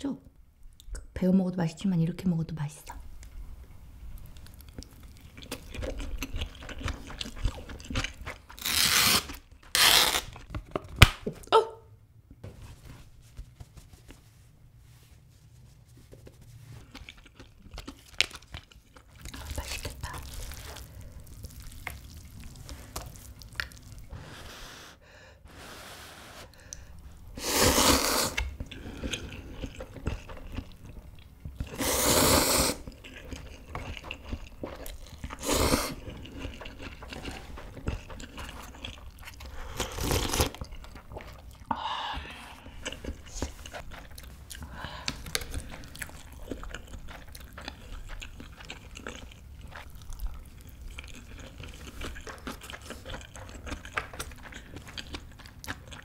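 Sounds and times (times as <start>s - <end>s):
wet chewing and mouth sounds: 4.1s - 11.0s, 16.2s - 24.2s, 26.5s - 56.0s
noodle slurps: 24.1s - 28.5s, 31.7s - 32.9s.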